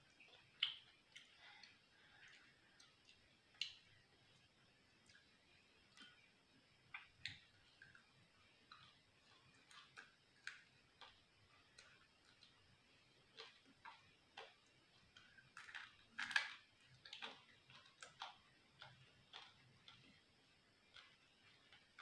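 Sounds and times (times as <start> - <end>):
person chewing: 8.6 - 12.6, 13.2 - 20.2.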